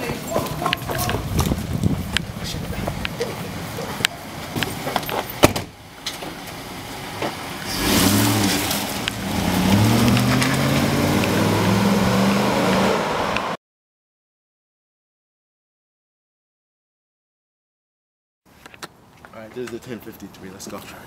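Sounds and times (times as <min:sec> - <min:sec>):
car engine revving: 0:06.5 - 0:13.6.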